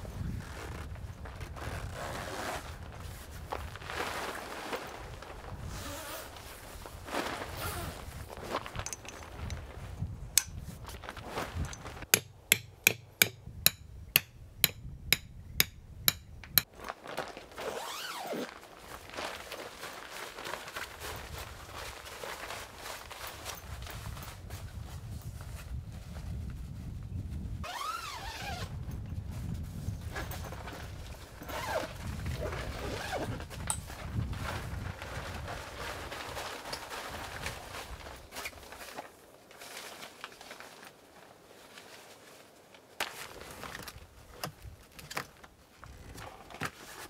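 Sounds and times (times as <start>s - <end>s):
soft rustle: 0.0s - 12.1s, 16.8s - 47.0s
tent zipper rasping: 1.5s - 3.2s, 3.8s - 8.8s, 17.6s - 18.6s, 27.6s - 28.8s, 31.4s - 33.6s
hammer striking stake: 12.1s - 16.7s.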